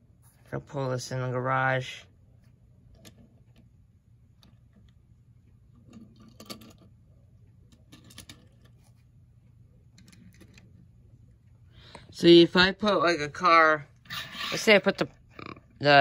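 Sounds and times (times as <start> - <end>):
toy cars clicking and clinking: 7.7 - 8.7.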